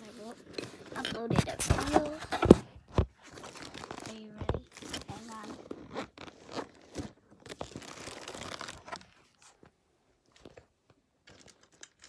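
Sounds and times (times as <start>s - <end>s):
plastic packaging rustling: 0.0s - 9.6s.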